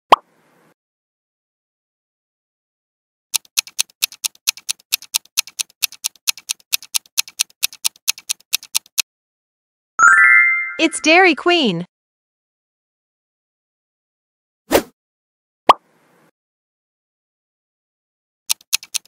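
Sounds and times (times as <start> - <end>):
clock ticking: 3.4 - 9.0, 18.5 - 19.0.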